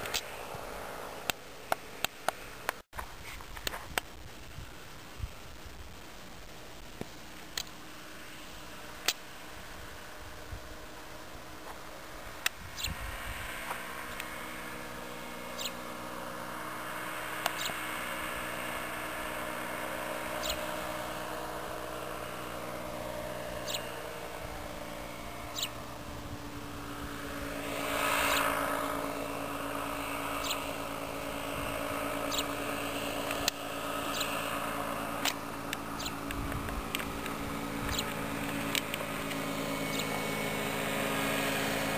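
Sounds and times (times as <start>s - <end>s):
engine and propeller droning overhead: 0.0s - 41.9s
sharp clicks: 35.2s - 40.2s.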